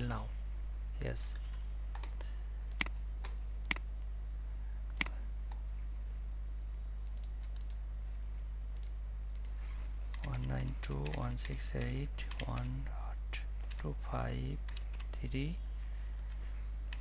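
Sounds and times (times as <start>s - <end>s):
steady low hum: 0.0s - 17.0s
mouse clicking: 2.0s - 3.9s.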